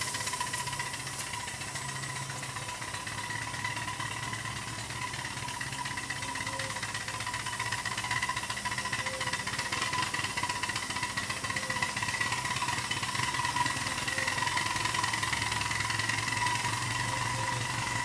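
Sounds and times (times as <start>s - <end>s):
model locomotive running on track: 0.0s - 18.0s.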